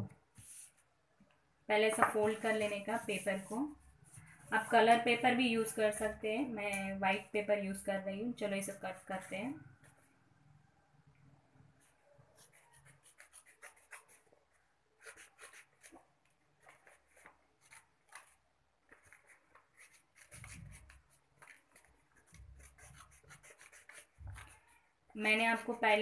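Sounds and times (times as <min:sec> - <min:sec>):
paper rustling and crinkling: 0:15.1 - 0:24.7.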